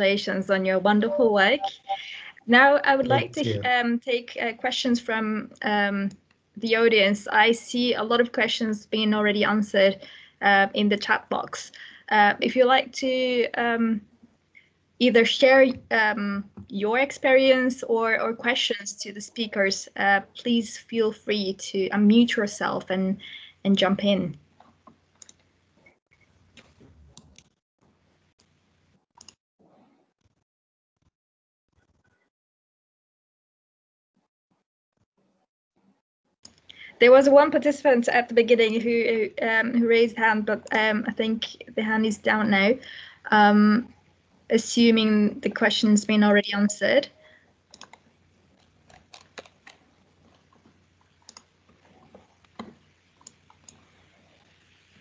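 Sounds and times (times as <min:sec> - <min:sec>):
faint low hum: 0:00.0 - 0:03.9
microphone background hiss: 0:00.6 - 0:04.7
faint clicks: 0:24.6 - 0:26.0, 0:47.7 - 0:53.9
computer keyboard typing: 0:47.7 - 0:48.0, 0:48.6 - 0:50.5.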